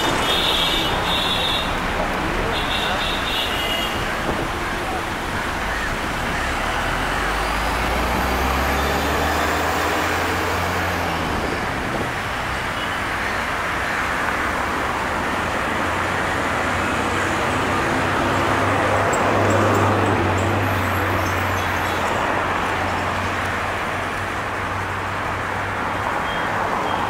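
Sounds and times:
street traffic driving past: 0.0 - 27.0
vehicle engine hum passing close: 4.9 - 12.2.

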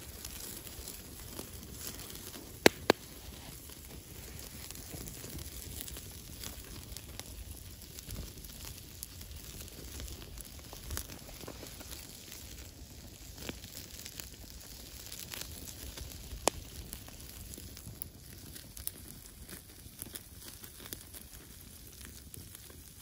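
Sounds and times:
campfire crackling and popping: 0.0 - 23.0.

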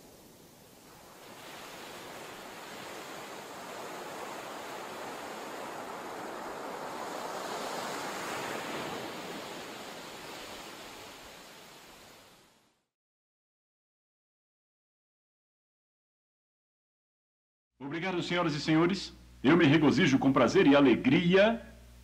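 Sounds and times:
rushing surf noise: 0.0 - 12.6.

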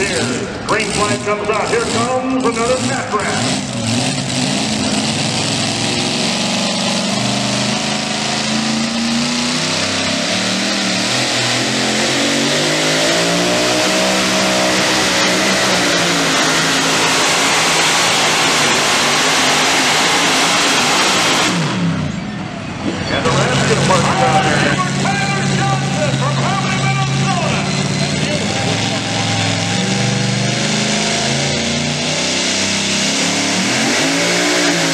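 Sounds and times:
supercharged engine at full throttle: 0.0 - 34.9.

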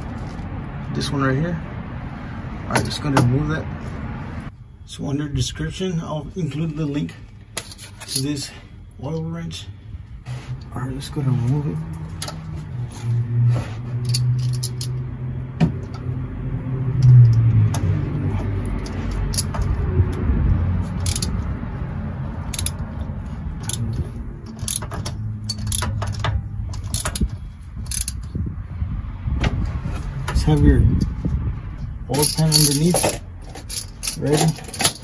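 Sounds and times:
ratchet metallic clicks: 18.6 - 20.2, 21.0 - 21.5, 22.4 - 28.3.

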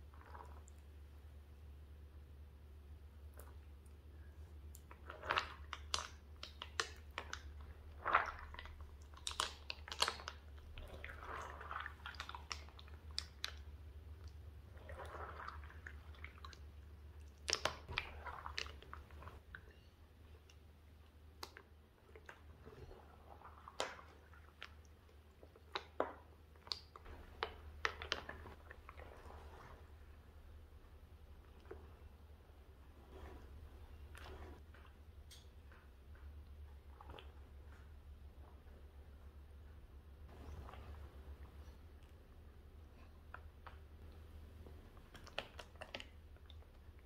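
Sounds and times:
slime squelching and popping: 4.6 - 32.2, 40.2 - 47.0.

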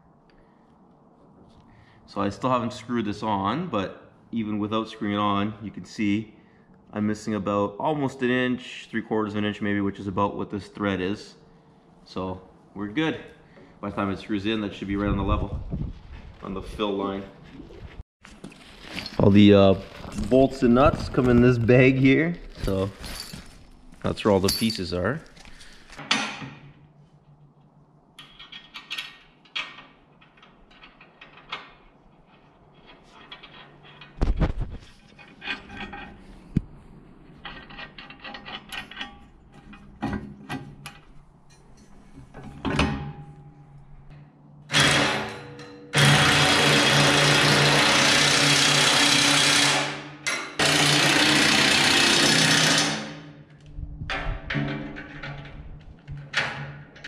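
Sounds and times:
metal parts clinking: 22.5 - 26.0
power tool running: 44.7 - 45.3, 46.0 - 53.2.

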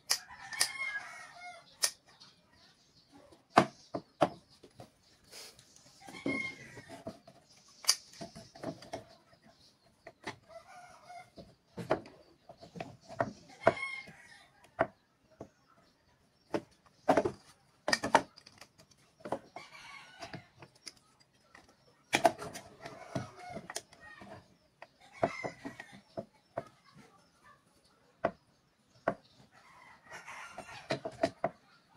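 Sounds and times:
bird calls: 0.0 - 31.9
wooden boards knocking on table: 3.6 - 4.4.

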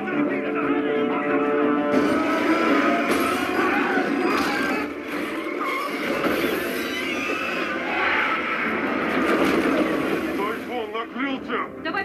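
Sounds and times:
fight noise: 2.0 - 5.0
monster screeching roar: 2.0 - 9.2.

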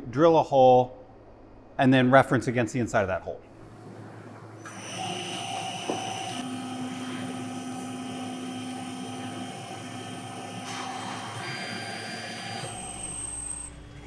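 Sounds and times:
lathe machine whine: 4.6 - 14.0.

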